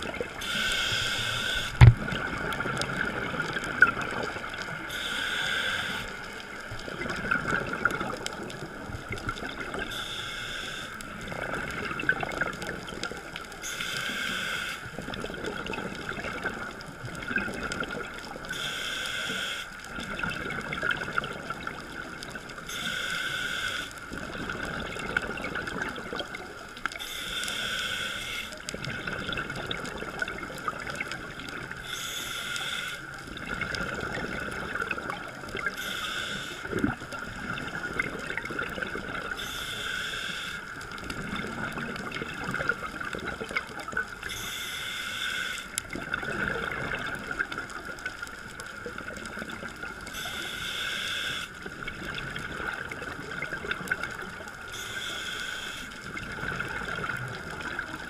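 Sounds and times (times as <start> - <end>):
diver exhaling bubbles underwater: 0.0 - 4.6
bubbling hiss: 0.0 - 58.0.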